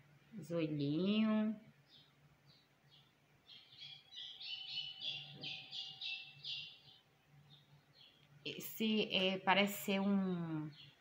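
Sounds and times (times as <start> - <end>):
bird chirping high notes: 3.5 - 8.2.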